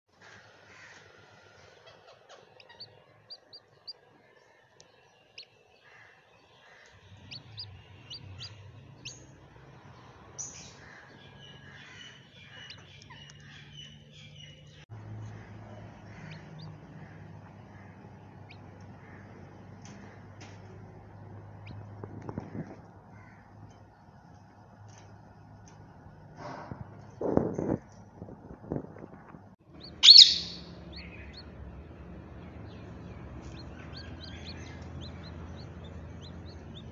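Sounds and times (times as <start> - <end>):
chicks peeping: 0.9 - 5.6, 6.8 - 22.9, 29.7 - 36.9.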